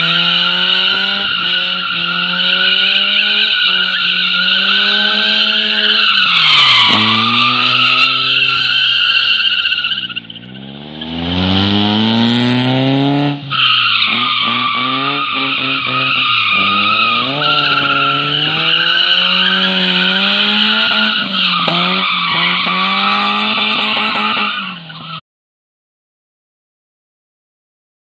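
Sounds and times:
car engine revving hard: 0:00.0 - 0:06.0, 0:06.8 - 0:08.8, 0:10.4 - 0:24.6
tyres squealing on concrete: 0:00.6 - 0:10.6, 0:13.4 - 0:25.2.

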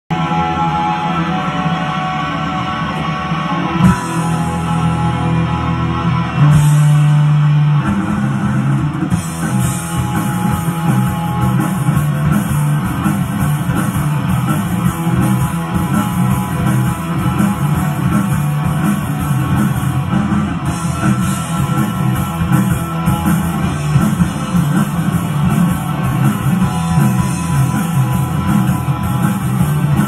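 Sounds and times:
live rock band playing: 0:00.1 - 0:30.0.

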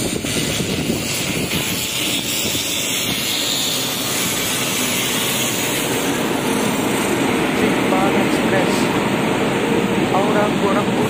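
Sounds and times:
hiss: 0:00.0 - 0:07.5
locomotive wheels rumbling: 0:00.0 - 0:11.0.

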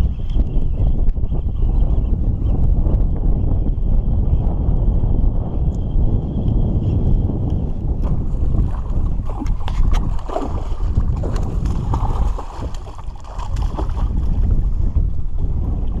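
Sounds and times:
wind buffeting microphone: 0:00.0 - 0:16.0
fish splashing at surface: 0:08.7 - 0:14.2.

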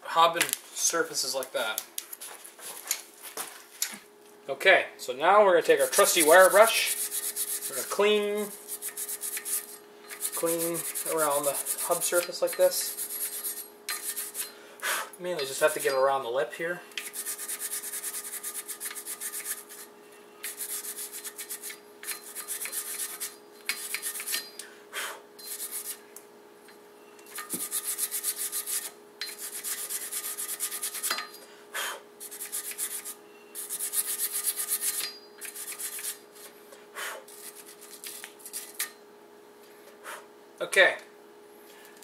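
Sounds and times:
wire brush scrubbing metal: 0:05.8 - 0:14.5, 0:15.4 - 0:16.2, 0:16.9 - 0:24.6, 0:25.4 - 0:26.0, 0:27.3 - 0:31.4, 0:32.2 - 0:36.5, 0:37.3 - 0:38.9.

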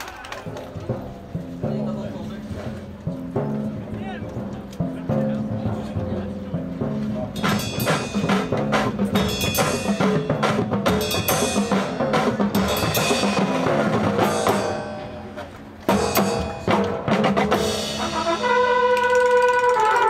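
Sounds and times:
rapid drum strikes: 0:03.2 - 0:15.1, 0:15.9 - 0:18.2
brass held chords: 0:17.6 - 0:20.0.

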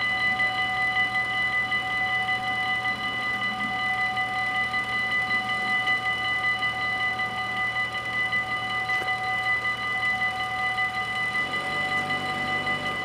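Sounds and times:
level crossing warning bells: 0:00.0 - 0:13.0.

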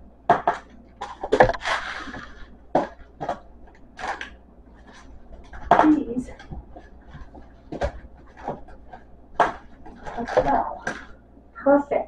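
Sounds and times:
packages knocking on wooden shelves: 0:04.9 - 0:11.1.

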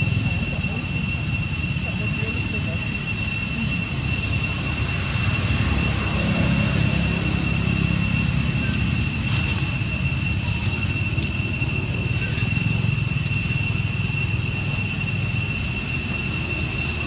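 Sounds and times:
high-pitched whine: 0:00.0 - 0:17.0.

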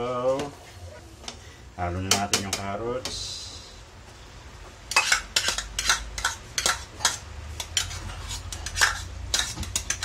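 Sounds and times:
utensils scraping and clinking pot: 0:04.9 - 0:10.0.

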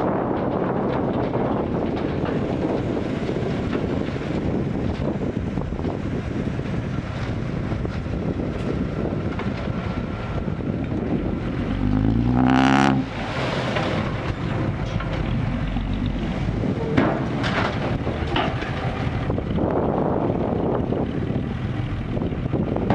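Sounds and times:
diesel truck engines rumbling: 0:00.0 - 0:22.9
wind on microphone: 0:00.0 - 0:22.9
engine revving: 0:11.4 - 0:14.1.

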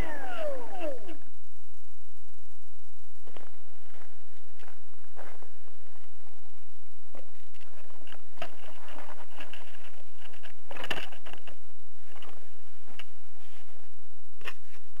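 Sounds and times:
steady low hum: 0:00.0 - 0:15.0
rustles and clicks of handling: 0:03.2 - 0:15.0.

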